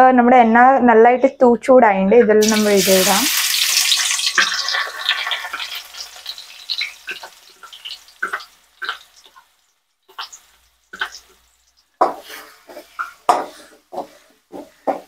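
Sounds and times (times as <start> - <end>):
oil popping and crackling: 2.4 - 12.4
masala frying in hot oil: 2.4 - 13.4.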